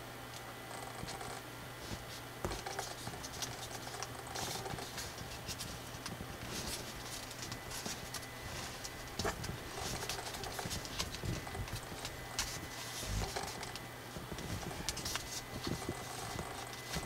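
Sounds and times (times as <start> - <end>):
paper rustling and crinkling: 1.8 - 17.0.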